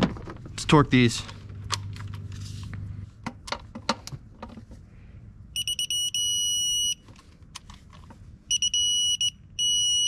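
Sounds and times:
torque wrench beeping: 5.6s - 7.0s, 8.5s - 10.0s.

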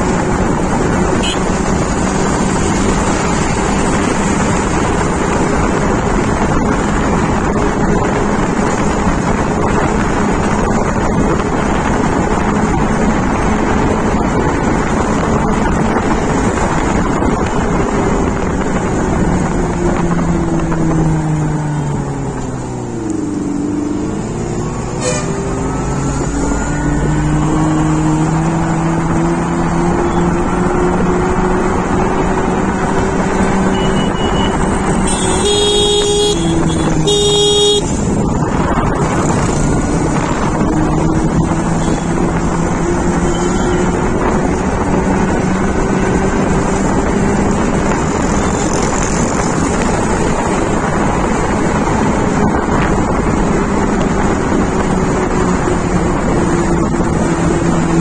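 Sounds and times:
electric motorcycle hum: 0.0s - 58.0s
road and wind noise: 0.0s - 58.0s
vehicle horn honking: 1.2s - 1.6s, 24.9s - 25.7s, 33.7s - 38.0s, 43.2s - 43.8s.

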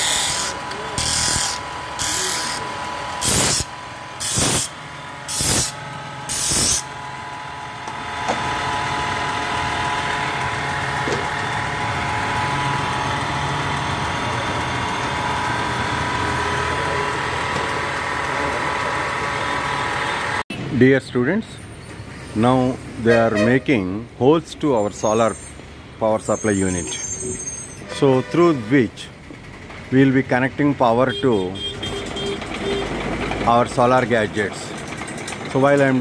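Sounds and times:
disc sander grinding wood: 0.0s - 20.4s
sander humming: 0.0s - 20.4s.

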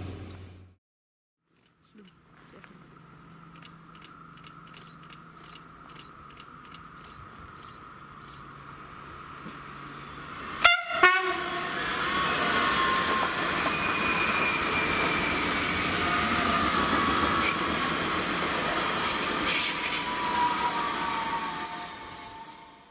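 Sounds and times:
train wheels rolling: 3.3s - 10.6s, 11.7s - 22.8s
train horn blasts: 10.5s - 17.6s, 18.8s - 22.9s.

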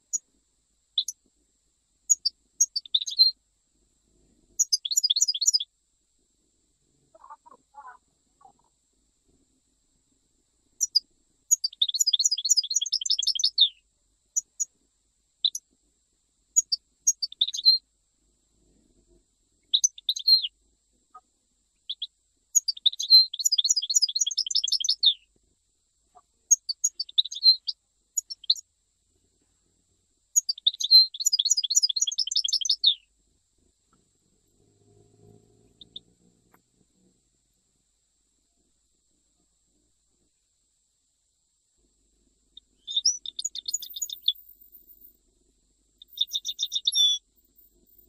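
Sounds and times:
goldfinch singing: 2.1s - 3.3s, 4.6s - 5.7s, 10.8s - 13.8s, 16.6s - 17.8s, 21.9s - 25.2s, 26.8s - 28.6s, 30.4s - 33.0s, 35.6s - 36.1s, 42.8s - 44.5s, 46.0s - 47.2s
rapid bird trills: 7.1s - 8.7s, 30.4s - 33.0s, 34.9s - 36.2s, 42.6s - 44.9s, 46.0s - 47.2s.

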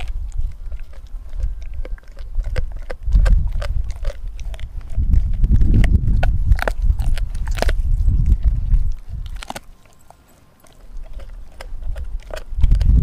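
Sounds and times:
low rumbling: 0.0s - 9.7s
dog gnawing frozen bone: 0.0s - 13.0s.

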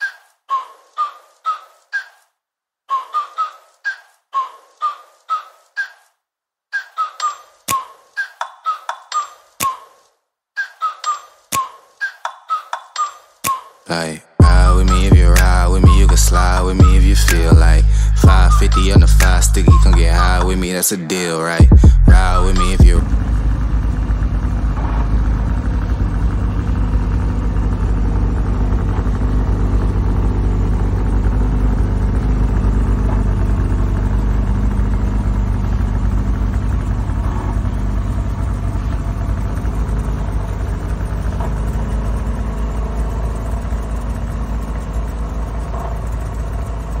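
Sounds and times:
snowmobile engine idling: 13.9s - 47.0s.

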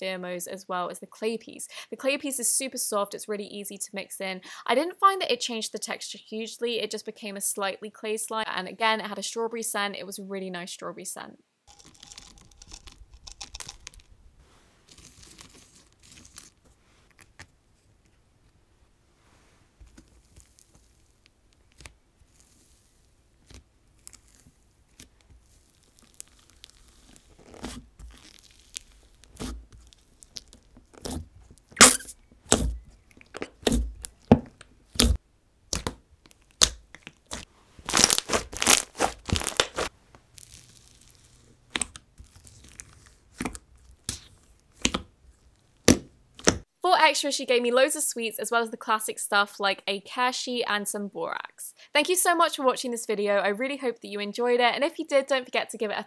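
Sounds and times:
sticky slime pops and crunches: 27.6s - 40.8s, 41.7s - 45.1s.

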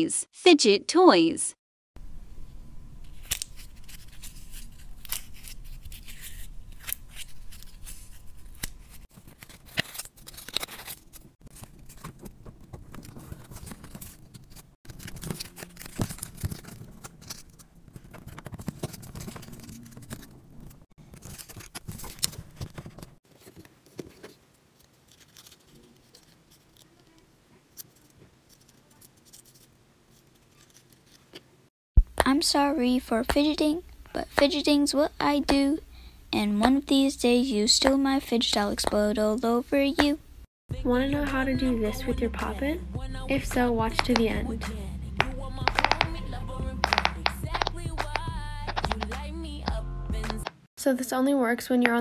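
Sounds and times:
paper being folded and creased: 3.1s - 31.4s.

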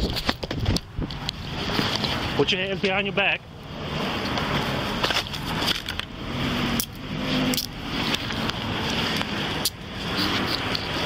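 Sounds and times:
sharp handcuff clicks: 6.8s - 7.8s.

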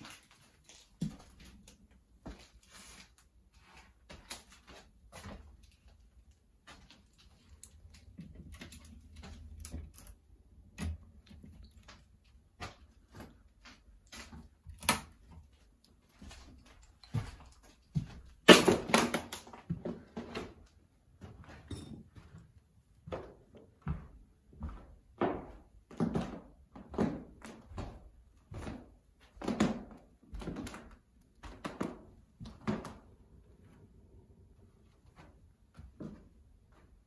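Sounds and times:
footsteps on carpet: 23.0s - 29.4s.

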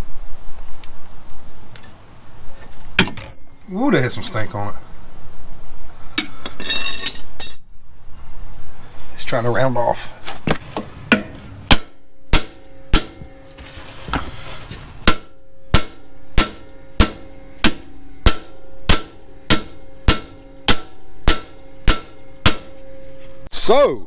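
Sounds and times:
hammer striking metal bolt: 3.0s - 3.5s, 11.1s - 13.4s, 15.0s - 22.9s
light metal clinks: 6.6s - 7.7s.

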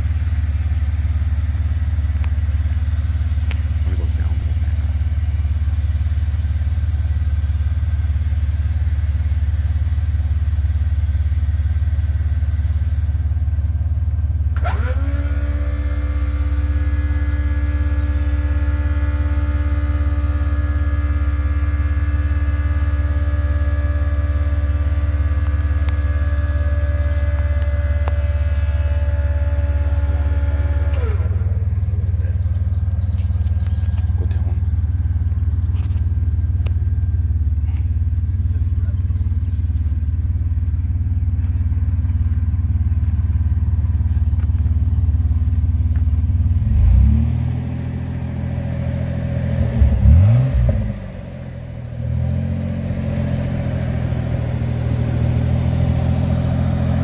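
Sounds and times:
truck engine rumbling: 0.0s - 57.0s
electric pump whining: 14.6s - 32.1s.

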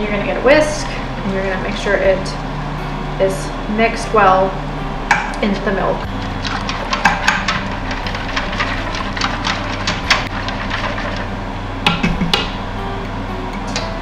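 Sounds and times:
whisk scraping a metal pot: 6.1s - 12.6s.

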